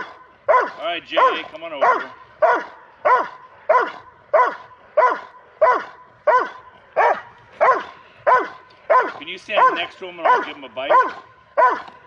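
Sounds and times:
dog barking: 0:00.0 - 0:12.0.

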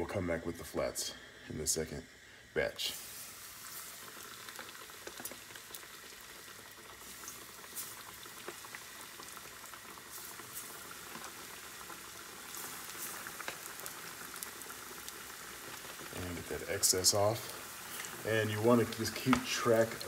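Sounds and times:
chicken deep-frying in oil: 0:02.6 - 0:20.0.

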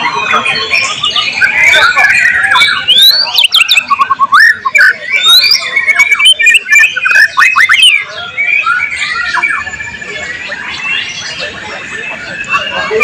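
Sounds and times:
bird singing whistled phrases: 0:00.0 - 0:13.0.

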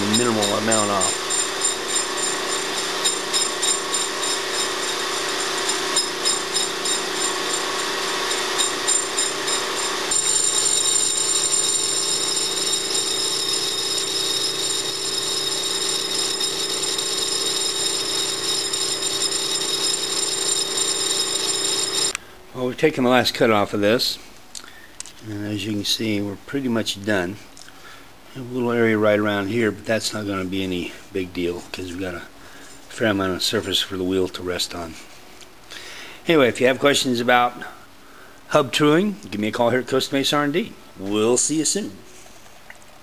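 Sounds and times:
metal lathe whining: 0:00.0 - 0:22.2.

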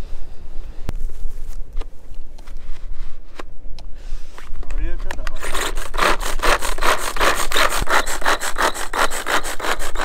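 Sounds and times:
blade rasping cutting strokes: 0:05.3 - 0:10.0.

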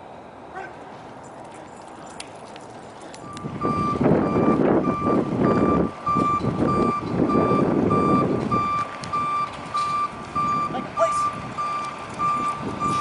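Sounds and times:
reversing alarm beeping: 0:03.2 - 0:13.0.

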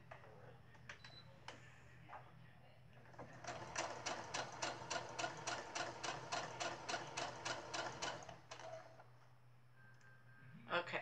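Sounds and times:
sewing machine stitching: 0:03.2 - 0:09.0.

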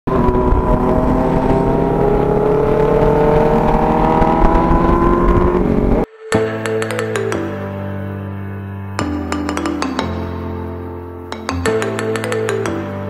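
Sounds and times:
motorcycle engine accelerating: 0:00.1 - 0:06.1
wind rumble: 0:00.1 - 0:06.1.

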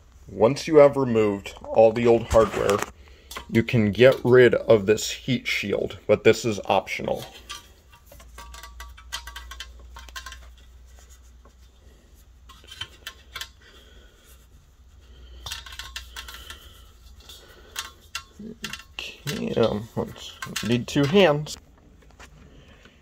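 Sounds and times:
low steady hum: 0:00.0 - 0:23.0
small clicks and clinks: 0:07.2 - 0:10.6, 0:15.4 - 0:21.6.

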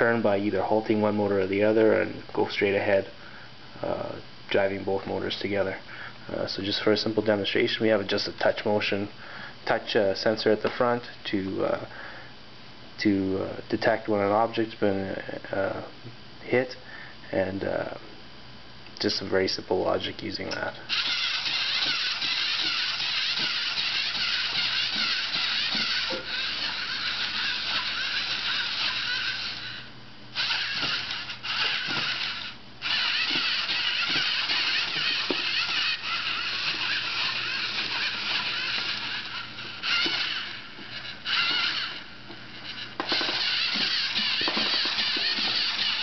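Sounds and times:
legs clicking on wooden floor: 0:20.9 - 0:29.6, 0:30.4 - 0:46.0
servo motors whirring: 0:20.9 - 0:46.0.

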